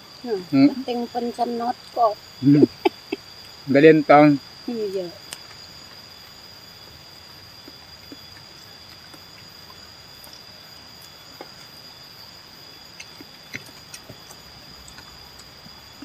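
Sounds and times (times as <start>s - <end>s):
high-pitched insect trill: 0.0s - 16.0s
people eating by hand: 5.2s - 16.0s.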